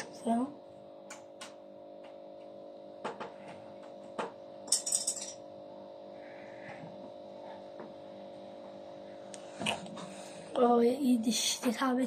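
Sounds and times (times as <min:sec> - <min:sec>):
steady low hum: 0:00.0 - 0:12.0
metallic clinking rattle: 0:04.7 - 0:05.4.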